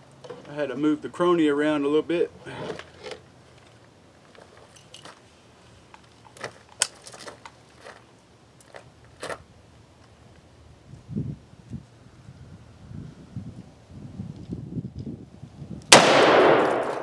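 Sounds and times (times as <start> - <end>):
rifle handling clicks and knocks: 2.6 - 5.2, 5.9 - 9.4, 16.6 - 17.0.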